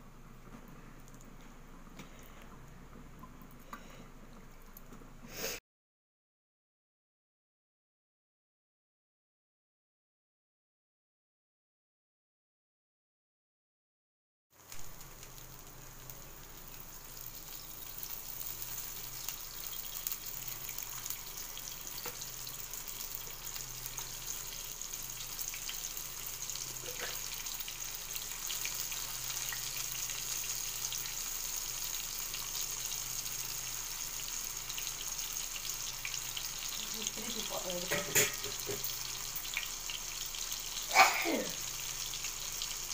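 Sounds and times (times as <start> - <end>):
fish sizzling in oil: 14.6 - 42.9.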